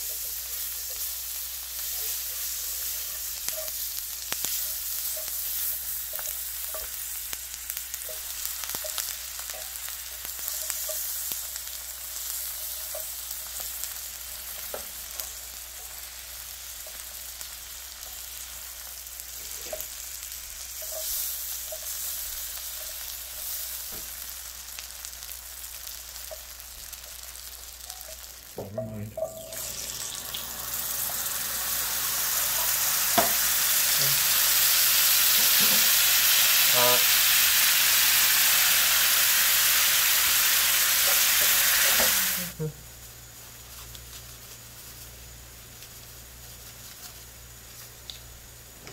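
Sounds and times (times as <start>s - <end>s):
butter sizzling in a skillet: 0.0s - 48.9s.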